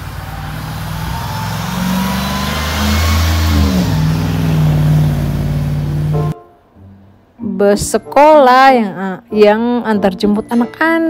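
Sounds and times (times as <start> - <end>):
bus engine driving past: 0.0 - 6.4.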